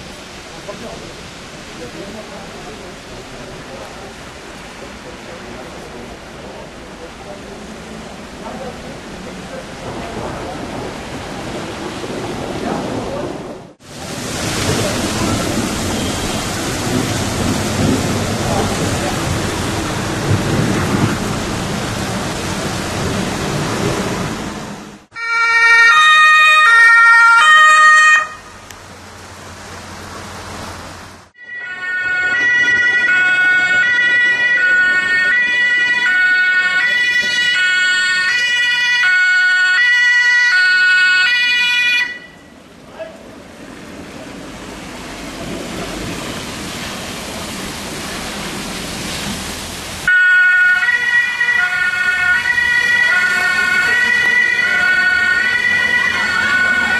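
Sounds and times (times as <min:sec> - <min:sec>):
heavy rain pouring: 0:00.0 - 0:56.9
two-tone emergency vehicle horn: 0:25.1 - 0:28.6, 0:31.4 - 0:42.5, 0:50.1 - 0:56.9.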